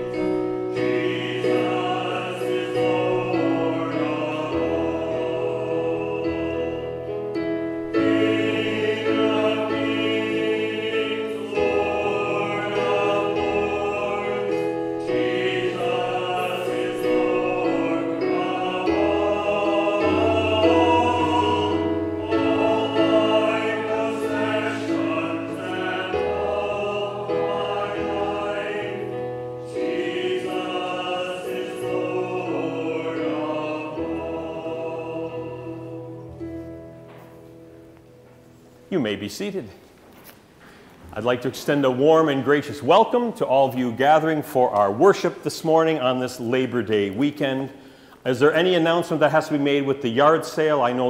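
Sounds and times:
congregation singing a hymn: 0.0s - 38.0s
instrumental accompaniment: 0.0s - 41.2s.

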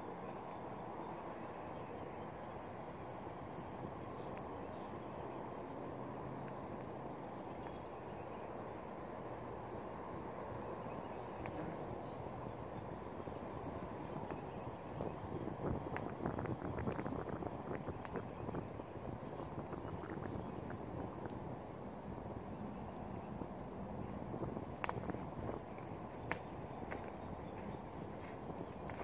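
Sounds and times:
low background rush: 0.0s - 29.0s
faint clicks: 24.8s - 27.2s.

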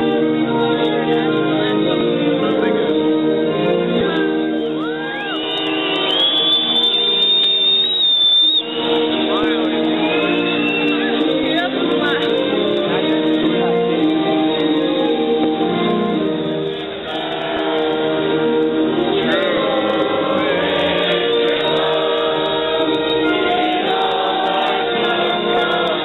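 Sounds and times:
steady musical accompaniment: 0.0s - 26.0s
choir singing: 11.0s - 26.0s.

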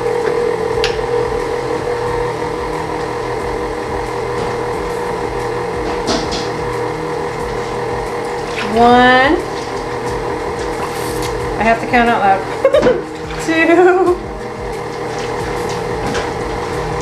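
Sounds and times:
stand mixer motor humming: 0.0s - 17.0s.

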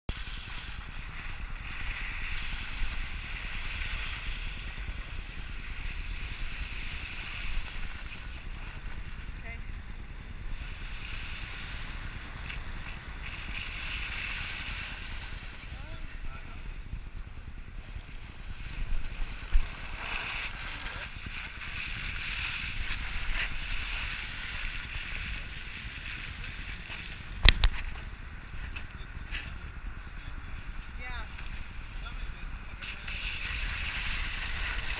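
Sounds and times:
wind noise on microphone: 0.1s - 34.9s.

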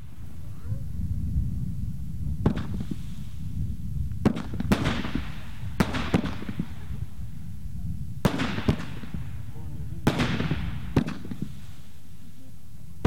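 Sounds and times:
fireworks crackle: 0.0s - 13.0s
fireworks bangs: 2.3s - 7.4s, 8.2s - 12.3s.

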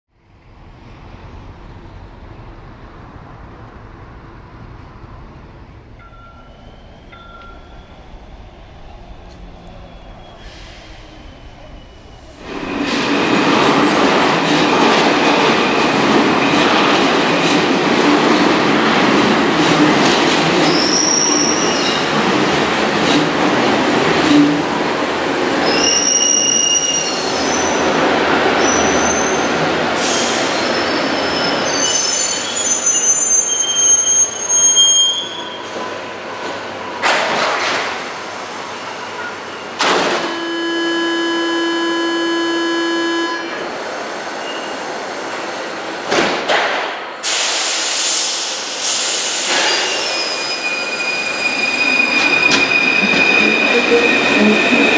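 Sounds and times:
high-pitched wheel squeals: 20.6s - 22.1s, 25.6s - 27.8s, 28.6s - 35.7s, 49.6s - 54.9s
train rumble: 51.8s - 54.9s.

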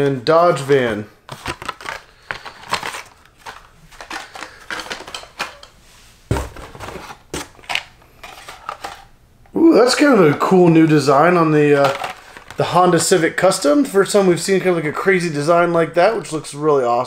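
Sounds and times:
plastic packaging clicks and crinkles: 1.3s - 5.7s, 6.5s - 9.1s, 11.8s - 13.2s.

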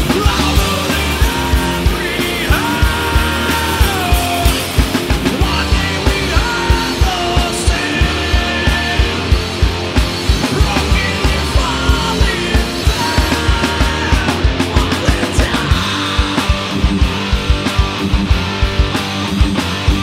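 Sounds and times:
distorted electric guitars: 0.0s - 20.0s
rapid kick-drum beat: 0.0s - 20.0s.

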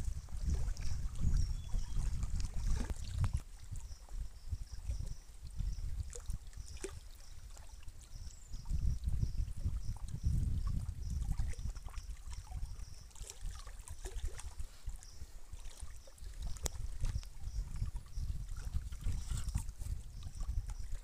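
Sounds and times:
water lapping against rocks: 0.0s - 21.0s
wind rumbling on microphone: 0.0s - 21.0s.

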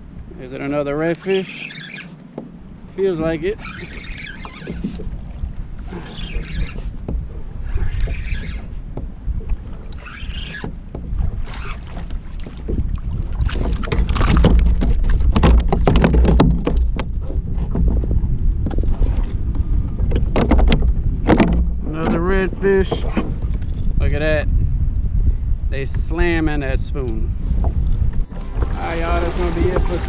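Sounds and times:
water lapping at a kayak: 0.0s - 26.2s, 27.0s - 30.0s
wind buffeting the microphone: 2.2s - 30.0s
fish splashing and knocking: 10.6s - 19.1s, 20.0s - 23.8s.

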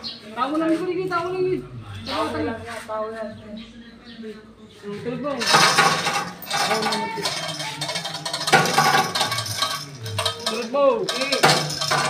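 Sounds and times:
metal clinking and clanking: 5.4s - 12.0s.

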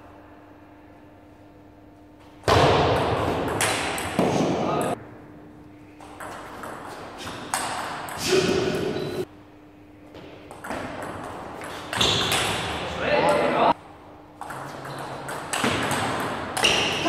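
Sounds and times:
table tennis ball pinging: 2.5s - 5.0s, 6.0s - 8.2s, 10.4s - 13.5s.

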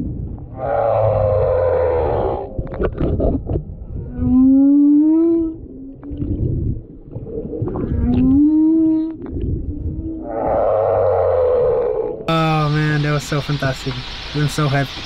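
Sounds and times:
rasping whale call: 0.5s - 2.8s
whale moaning: 0.5s - 12.3s.

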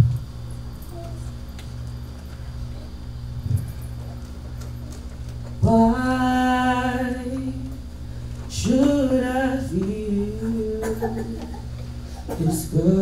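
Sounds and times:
woman singing: 5.6s - 7.8s, 8.5s - 11.6s, 12.3s - 13.0s.

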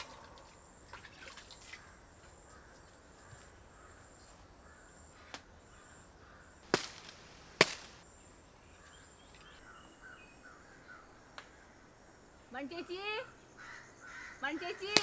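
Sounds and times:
faint bird calls: 1.6s - 6.6s, 8.6s - 11.9s, 12.5s - 15.0s
sharp cracks: 6.6s - 8.0s.

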